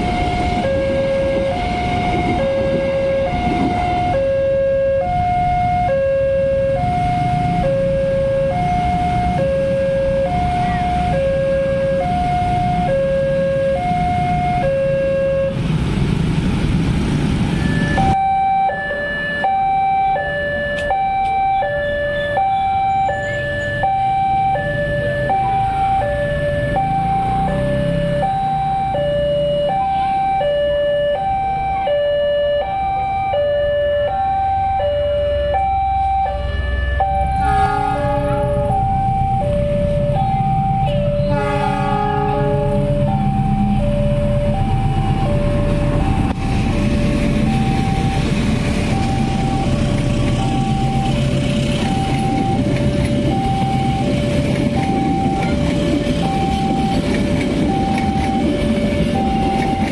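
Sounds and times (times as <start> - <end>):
train rumbling past: 0.0 - 4.2, 15.4 - 18.2, 36.4 - 59.9
two-tone crossing alarm: 0.0 - 15.7, 17.5 - 59.9
motorbike traffic: 0.0 - 59.9.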